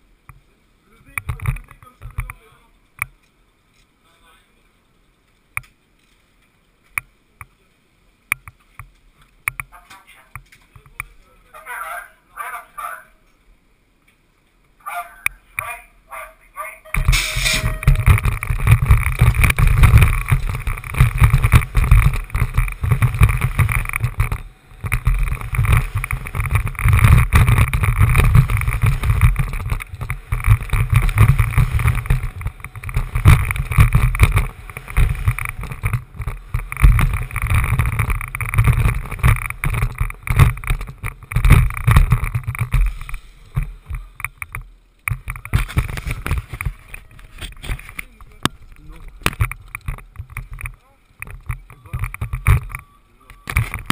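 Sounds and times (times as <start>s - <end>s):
bike tyre rumble on dirt: 16.9s - 52.8s
wind buffeting microphone: 17.0s - 52.7s.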